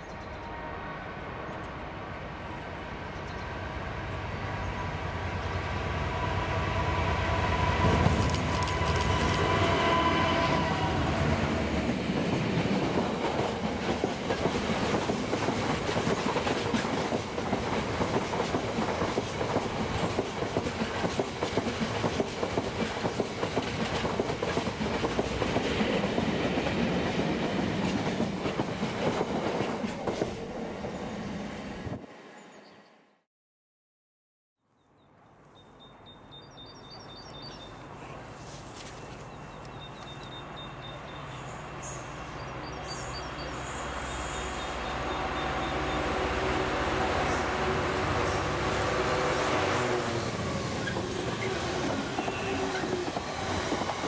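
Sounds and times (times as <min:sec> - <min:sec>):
diesel locomotive engine: 0:00.0 - 0:32.0, 0:37.2 - 0:54.0
train wheels clattering on rails: 0:07.8 - 0:09.7, 0:11.7 - 0:30.5, 0:50.0 - 0:54.0.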